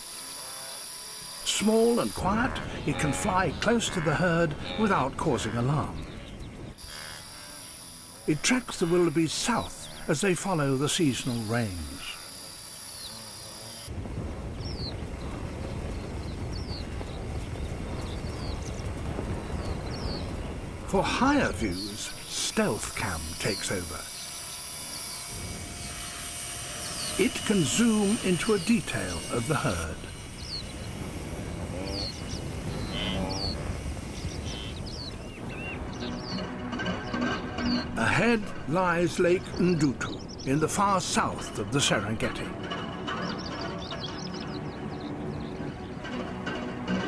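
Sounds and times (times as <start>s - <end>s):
high insect trill: 0.0s - 44.6s
wildebeest grunting calls: 0.1s - 13.9s, 31.4s - 34.8s
galloping hooves drumming: 0.9s - 12.1s, 13.1s - 47.0s
high bird chirps: 21.4s - 31.0s, 31.9s - 38.0s.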